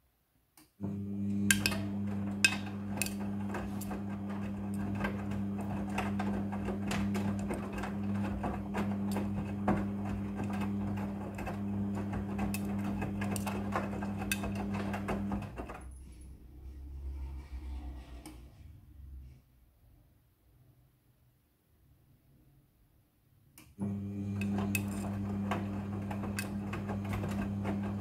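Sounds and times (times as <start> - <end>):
washing machine motor hum: 0.8 - 15.8, 23.8 - 28.0.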